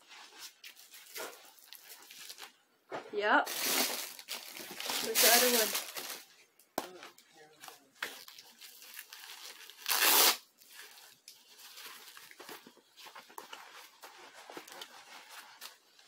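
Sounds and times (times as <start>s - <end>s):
gloves rustling: 3.4s - 16.0s
hook-and-loop strap ripping open: 9.8s - 10.4s.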